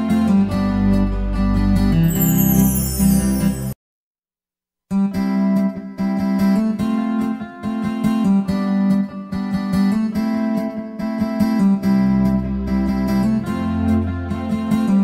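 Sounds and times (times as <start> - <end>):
plucked acoustic guitar music: 5.2 - 15.0.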